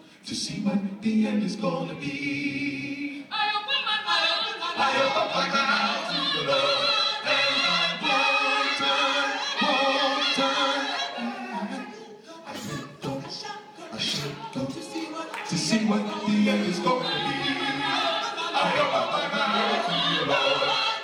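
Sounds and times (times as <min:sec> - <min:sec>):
male vocal group singing in harmony: 0:00.0 - 0:21.0.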